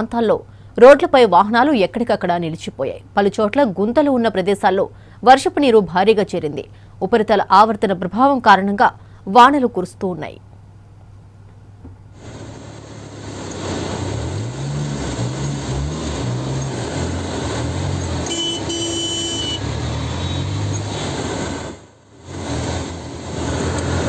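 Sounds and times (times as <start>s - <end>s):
hiss of rain and water: 12.1s - 18.2s, 20.8s - 24.0s
vehicle engines revving: 12.2s - 24.0s.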